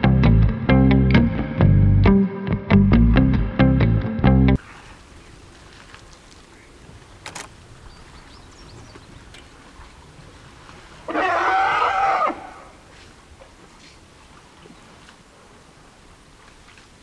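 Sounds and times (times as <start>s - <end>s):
loud animal call: 11.1s - 12.8s.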